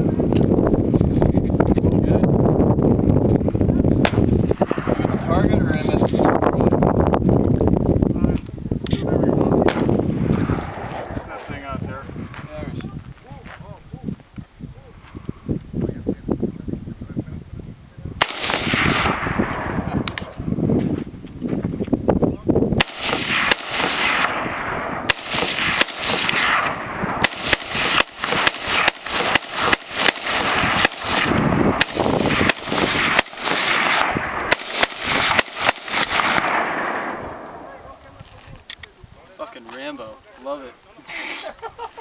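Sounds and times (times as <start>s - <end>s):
rifle shots with echo: 4.0s - 5.9s, 9.6s - 11.8s, 18.2s - 20.5s, 22.8s - 38.2s.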